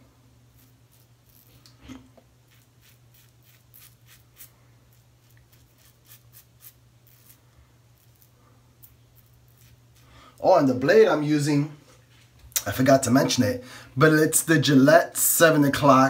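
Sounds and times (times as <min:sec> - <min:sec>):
razor scraping stubble: 0:00.5 - 0:01.7, 0:02.5 - 0:07.4, 0:08.0 - 0:10.1.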